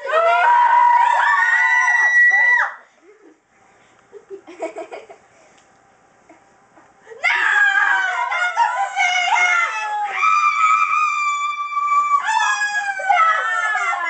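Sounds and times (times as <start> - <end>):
girls screaming: 0.0 - 2.8, 7.2 - 14.0.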